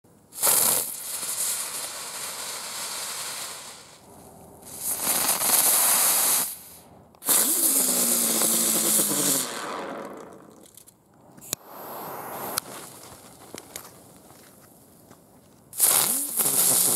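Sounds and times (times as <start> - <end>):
ground spinner fireworks hissing: 0.3 - 10.2, 11.4 - 13.8, 15.7 - 16.9.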